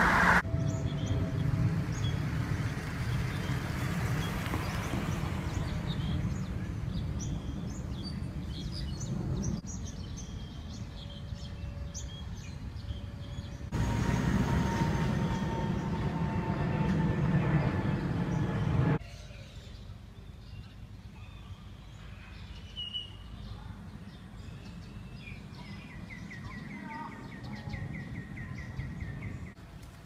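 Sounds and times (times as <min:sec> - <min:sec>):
birds chirping: 0:00.0 - 0:21.8, 0:22.6 - 0:29.6
steady low rumble: 0:13.7 - 0:19.0.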